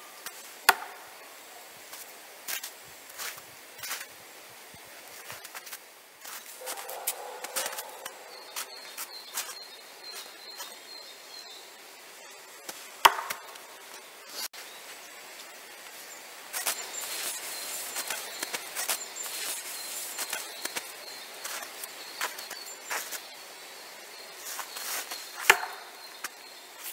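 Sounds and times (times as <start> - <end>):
high thin chirping: 16.0 - 26.9
knife thunking into tree: 25.4 - 25.9.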